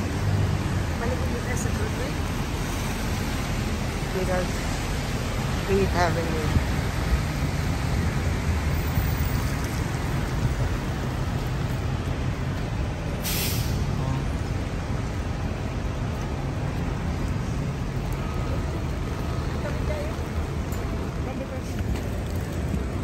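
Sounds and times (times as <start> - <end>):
city street traffic rumble: 0.0 - 23.0
air brakes hissing: 13.1 - 14.0.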